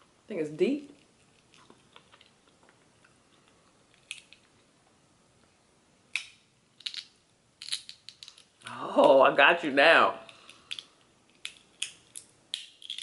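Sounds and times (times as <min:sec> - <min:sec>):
crab shell cracking: 0:10.3 - 0:13.0.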